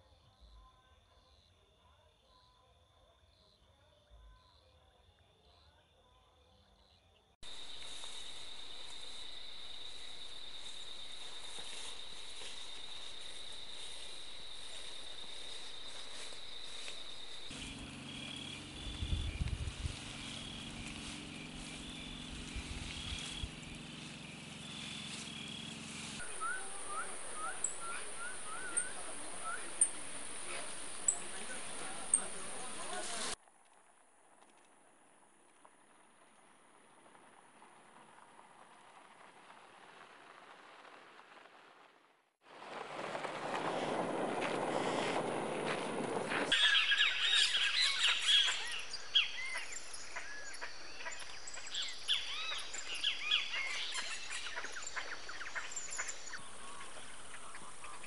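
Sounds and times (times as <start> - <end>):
insects trilling: 7.4 - 33.4, 46.4 - 58.0
bird chirps: 7.5 - 33.4, 46.5 - 58.0
low hum: 7.6 - 33.4.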